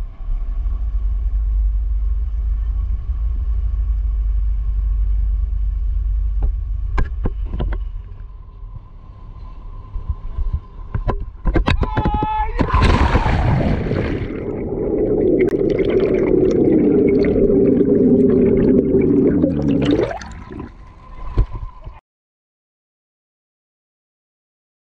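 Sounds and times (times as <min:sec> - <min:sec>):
underwater low rumble: 0:00.0 - 0:11.0, 0:12.7 - 0:22.0
gurgling exhaled bubbles: 0:12.7 - 0:21.7.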